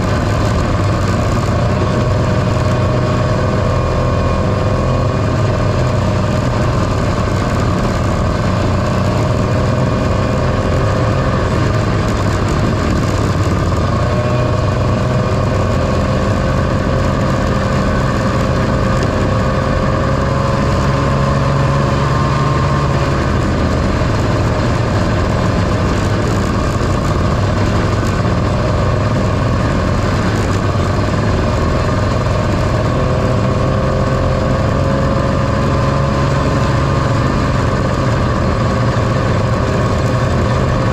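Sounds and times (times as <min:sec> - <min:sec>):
snowmobile engine running: 0:00.0 - 0:40.9.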